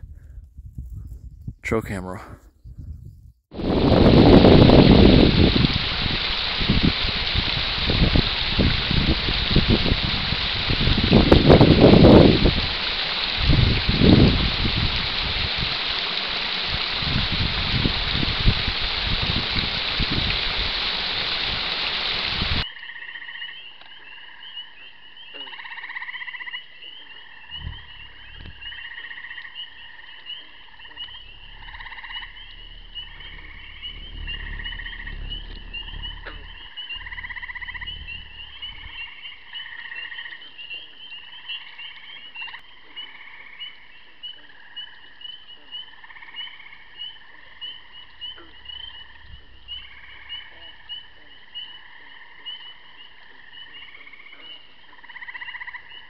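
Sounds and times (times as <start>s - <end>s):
low rumble: 0.0s - 1.6s, 2.7s - 22.6s, 27.5s - 29.3s, 30.7s - 40.4s, 47.6s - 52.6s
frogs trilling: 3.6s - 56.0s
lower frog calls: 3.6s - 56.0s.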